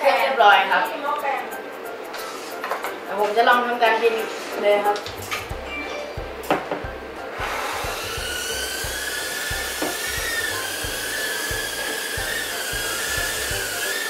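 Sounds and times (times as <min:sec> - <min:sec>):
drone motors high whine: 0:07.3 - 0:14.0.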